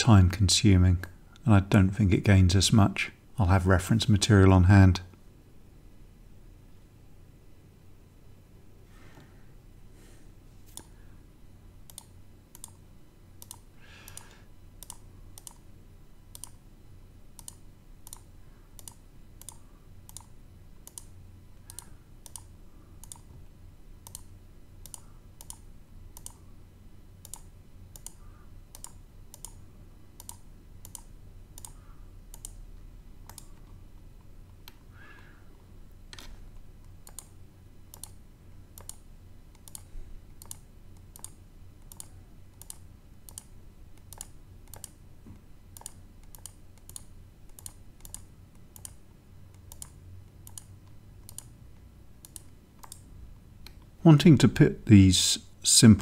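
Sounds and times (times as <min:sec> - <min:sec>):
faint low hum: 0:00.0 - 0:56.0
computer mouse clicking: 0:10.7 - 0:11.0, 0:11.9 - 0:12.8, 0:13.4 - 0:15.7, 0:16.3 - 0:16.6, 0:17.4 - 0:23.4, 0:24.0 - 0:26.4, 0:27.2 - 0:29.6, 0:30.2 - 0:32.6, 0:33.2 - 0:35.3, 0:36.1 - 0:38.2, 0:38.8 - 0:45.0, 0:45.7 - 0:51.5, 0:52.2 - 0:53.9.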